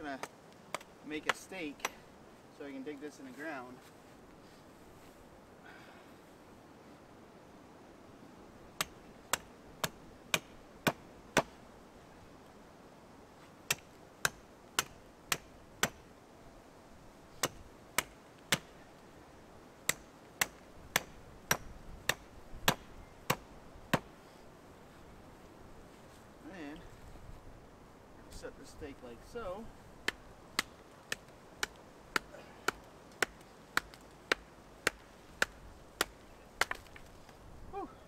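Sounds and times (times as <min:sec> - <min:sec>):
hatchet chopping wood: 0:00.1 - 0:02.1, 0:08.8 - 0:11.6, 0:13.7 - 0:16.1, 0:17.4 - 0:18.8, 0:19.8 - 0:24.1, 0:30.0 - 0:37.1.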